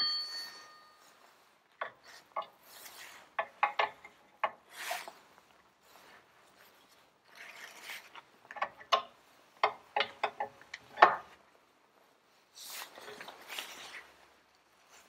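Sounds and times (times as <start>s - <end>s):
soft rustling: 4.7s - 8.5s, 11.3s - 15.0s.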